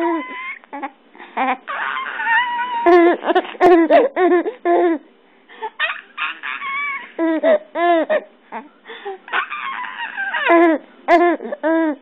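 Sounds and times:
baby cooing and squealing: 0.0s - 0.6s, 1.7s - 3.1s, 5.8s - 7.3s, 9.3s - 10.8s.

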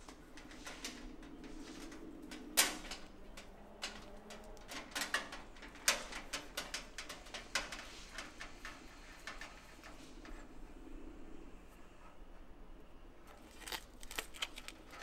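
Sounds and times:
wire clicking and rustling: 0.1s - 10.0s, 13.3s - 15.0s.

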